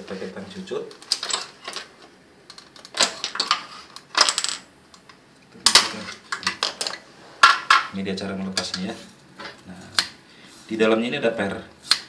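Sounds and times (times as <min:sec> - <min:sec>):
pliers and plastic parts clattering: 0:00.9 - 0:07.9.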